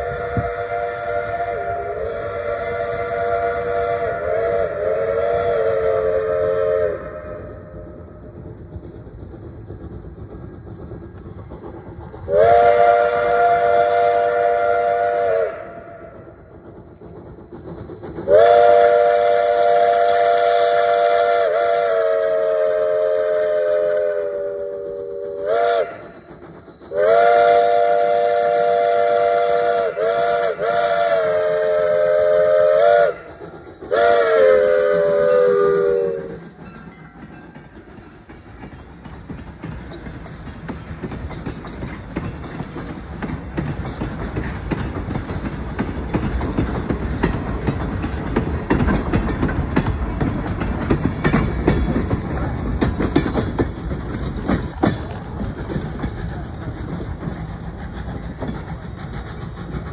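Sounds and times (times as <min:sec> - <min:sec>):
locomotive chime whistle: 0:00.0 - 0:07.6, 0:12.3 - 0:16.2, 0:18.2 - 0:38.4
train rumbling: 0:00.0 - 0:59.9.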